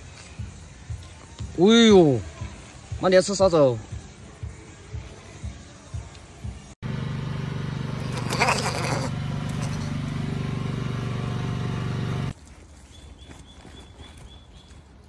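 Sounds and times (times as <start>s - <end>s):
low mechanical hum: 6.8s - 12.3s.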